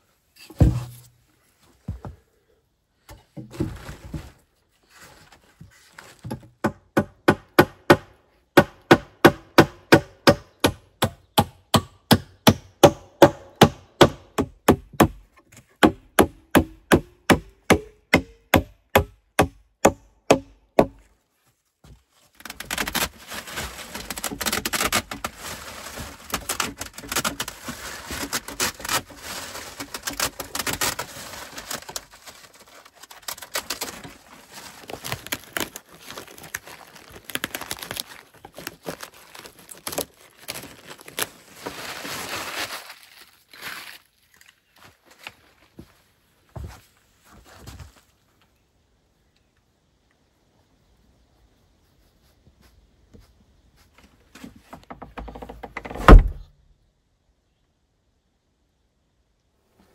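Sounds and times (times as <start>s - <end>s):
plastic tarp rustling: 3.4s - 6.3s, 22.0s - 45.7s.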